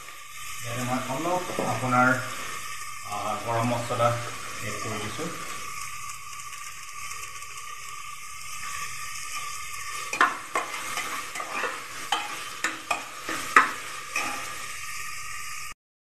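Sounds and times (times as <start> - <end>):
tomatoes sizzling in a pot: 0.0 - 15.8
metal spoon scraping a pot: 8.6 - 14.8.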